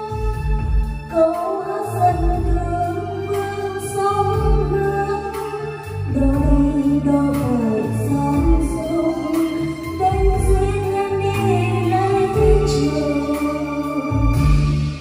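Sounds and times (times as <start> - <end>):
backing track music: 0.0 - 15.0
woman singing karaoke: 0.0 - 15.0.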